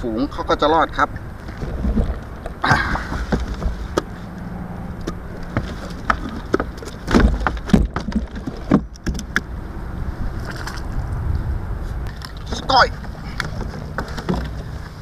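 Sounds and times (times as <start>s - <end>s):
gear clicking and knocking in kayak: 1.3s - 4.3s, 4.9s - 9.6s, 12.0s - 15.0s
wind on microphone: 8.6s - 14.0s.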